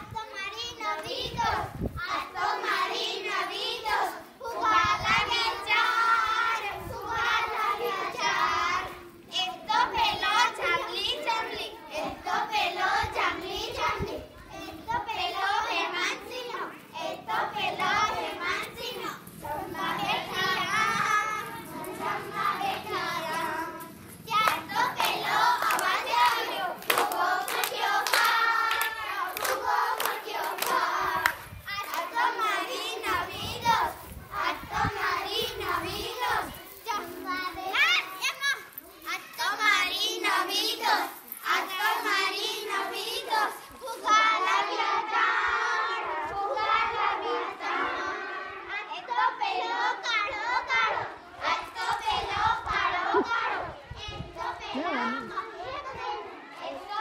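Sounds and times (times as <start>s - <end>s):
girls singing together: 0.7s - 37.7s, 39.5s - 57.0s
hands clapping: 24.4s - 32.1s.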